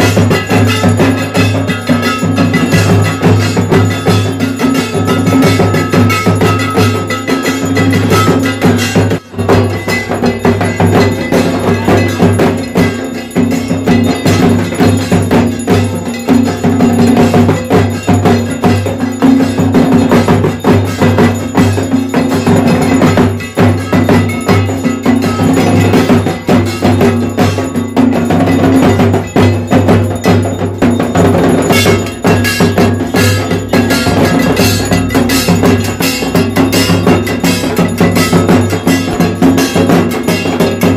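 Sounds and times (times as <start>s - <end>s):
bells and metal percussion clanging: 0.0s - 40.9s
drumming: 0.0s - 40.9s.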